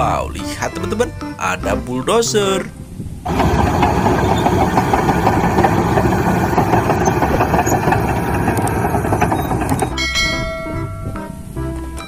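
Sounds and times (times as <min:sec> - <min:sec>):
bulldozer blade pushing dirt: 0:03.3 - 0:10.0
bulldozer diesel engine running: 0:03.3 - 0:10.0.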